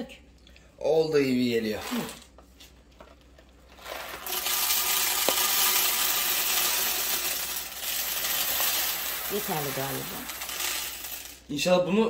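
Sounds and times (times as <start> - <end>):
coffee beans rattling into hopper: 3.6 - 11.8.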